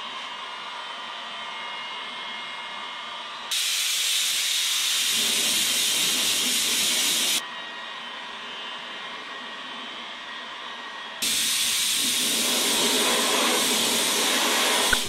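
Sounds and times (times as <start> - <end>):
compressed air blow gun hissing: 3.5 - 7.4, 11.2 - 15.0
heat gun fan running: 11.2 - 15.0.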